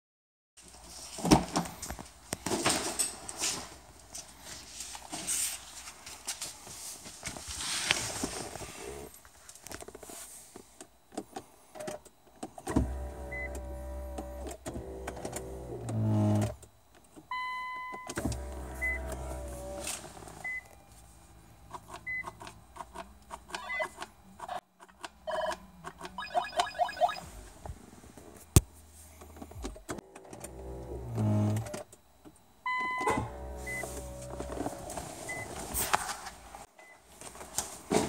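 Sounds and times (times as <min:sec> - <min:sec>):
electric motor whirring: 0:12.8 - 0:16.6, 0:30.2 - 0:31.7.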